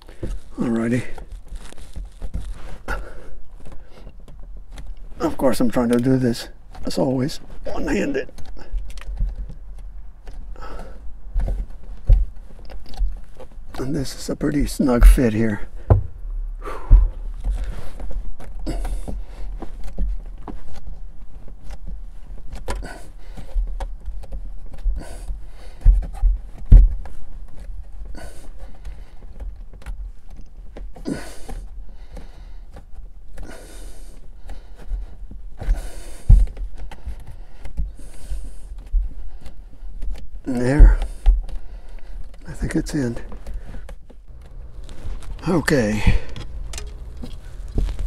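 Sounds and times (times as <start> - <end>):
scraping and rustling: 0.0 - 48.0
knocks and bumps: 0.1 - 48.0.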